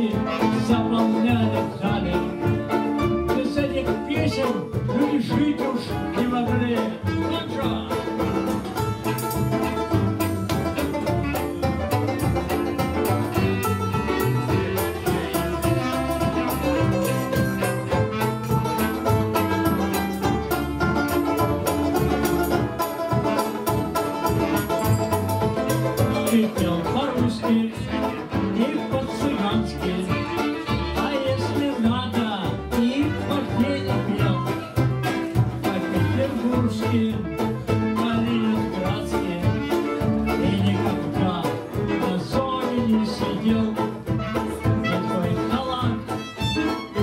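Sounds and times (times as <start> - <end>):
banjo strumming: 0.0 - 47.0
double bass: 0.0 - 47.0
fiddle: 0.0 - 47.0
clarinet: 5.8 - 32.2, 32.9 - 42.4, 43.0 - 47.0.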